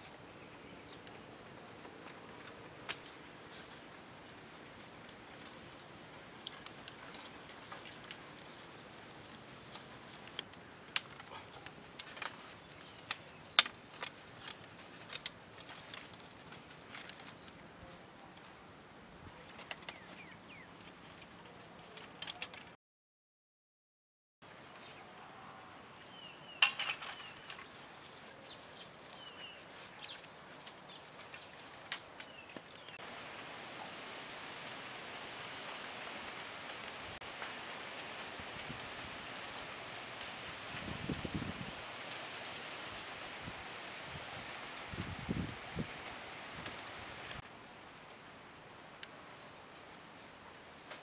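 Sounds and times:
bamboo clacking and tapping: 9.6s - 17.6s, 26.6s - 27.7s
steady hiss: 32.8s - 51.0s.

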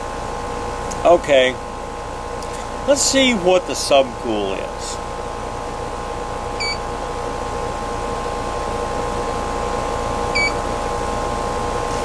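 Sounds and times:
air conditioner unit humming: 0.0s - 12.0s
short gauge beeps: 6.6s - 6.8s, 10.4s - 10.6s.

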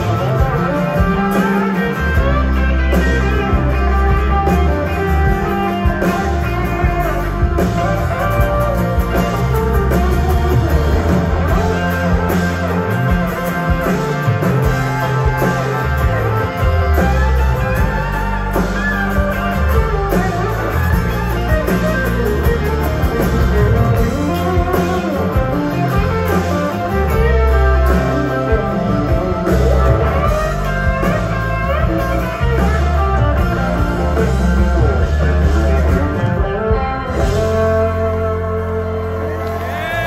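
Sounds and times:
live rock band playing: 0.0s - 40.0s.

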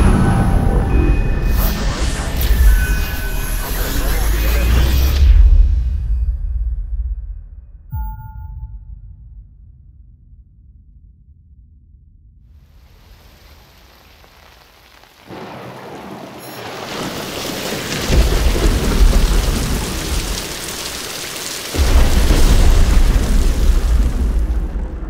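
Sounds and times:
thunder rumbling: 0.0s - 3.6s, 12.7s - 25.0s
rain: 0.0s - 5.4s, 12.5s - 25.0s.

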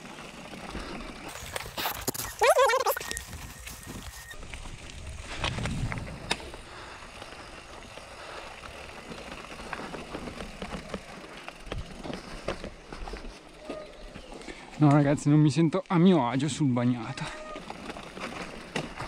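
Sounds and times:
bike tyres crunching over leaves: 0.0s - 19.0s
bike knocking and rattling: 3.2s - 15.4s, 16.4s - 19.0s.

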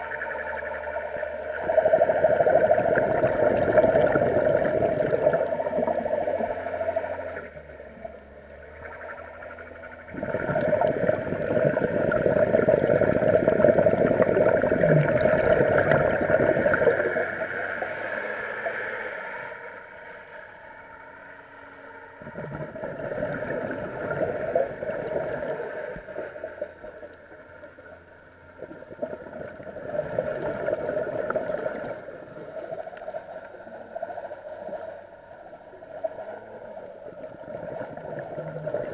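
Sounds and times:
faint steady hum: 0.0s - 38.9s
diver exhaling bubbles underwater: 1.4s - 7.7s, 10.1s - 17.6s, 22.2s - 26.6s, 28.6s - 32.9s, 37.0s - 38.9s.

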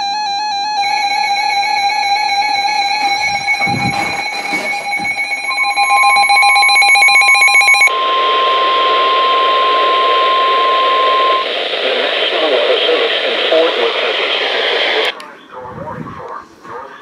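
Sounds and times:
steady alarm tone: 0.0s - 11.7s
warbling electronic alert: 0.7s - 11.4s
radio hiss: 7.9s - 17.0s.

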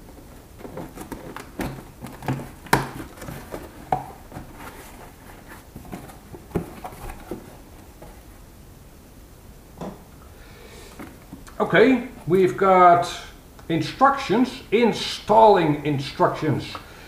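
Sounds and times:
cardboard flaps pulled open: 0.6s - 8.2s.

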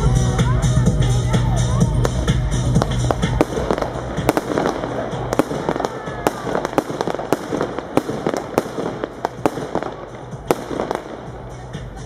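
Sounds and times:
firework cake bangs: 2.1s - 11.3s.

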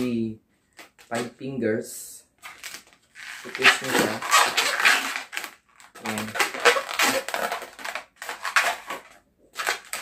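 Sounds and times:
rubber balloon crackling: 2.4s - 10.0s.

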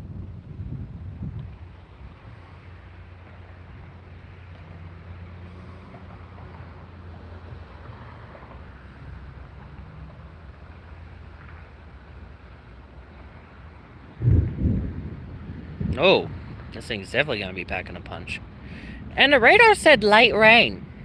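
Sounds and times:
wind on microphone: 0.0s - 4.0s, 14.1s - 21.0s
wind rustling trees: 0.0s - 21.0s.

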